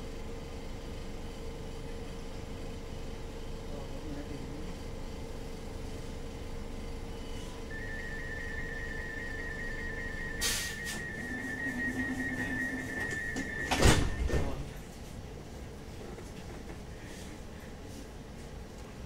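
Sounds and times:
tram drive whine: 4.9 - 19.0
high thin whistle: 7.4 - 14.6.

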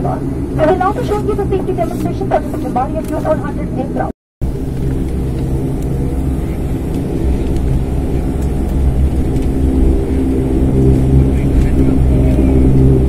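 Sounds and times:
propeller engine drone in cabin: 0.0 - 13.0.

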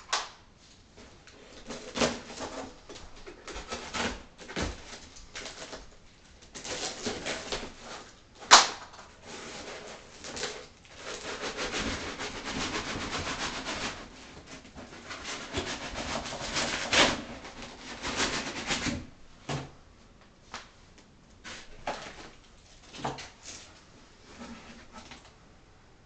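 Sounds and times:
foam scraping cardboard box: 1.0 - 5.9, 6.6 - 8.2, 9.2 - 19.1, 23.4 - 25.2.

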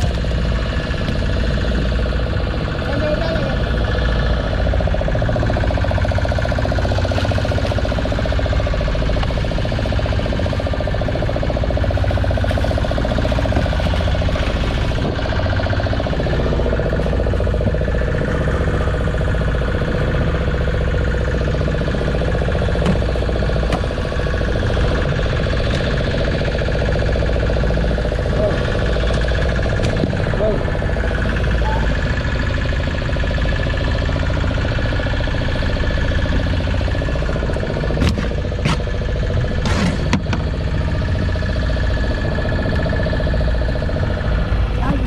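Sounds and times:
boat engine running steadily: 0.0 - 45.0.

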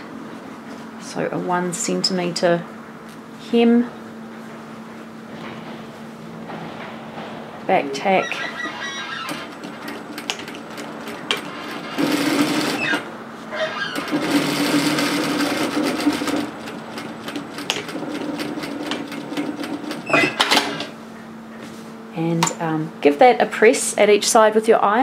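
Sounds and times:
sewing machine sewing: 8.4 - 20.9.

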